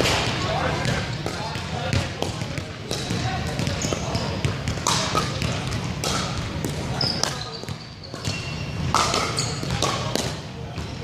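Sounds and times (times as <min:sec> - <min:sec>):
sneakers squeaking on wooden floor: 0:03.0 - 0:05.6, 0:06.3 - 0:10.1.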